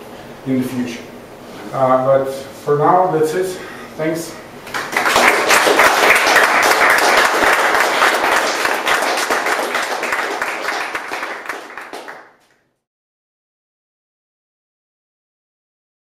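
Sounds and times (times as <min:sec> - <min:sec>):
audience applauding: 0:04.7 - 0:12.5.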